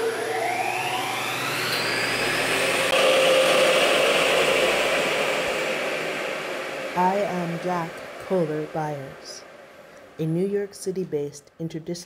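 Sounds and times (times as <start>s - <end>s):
blower motor whine and whir: 0.0s - 10.2s
air rushing through hood: 1.1s - 10.2s.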